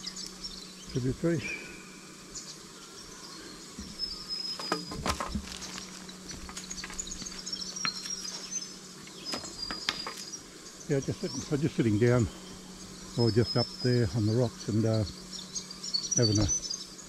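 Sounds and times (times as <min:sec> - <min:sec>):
stones clicking underfoot: 0:04.9 - 0:08.6
footsteps crunching on leaves: 0:05.0 - 0:08.7.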